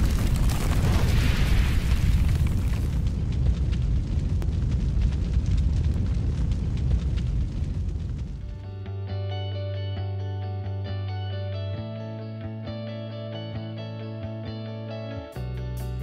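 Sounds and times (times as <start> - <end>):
deep fiery eruption rumble: 0.0 - 8.7
scattered crackles: 0.0 - 8.9.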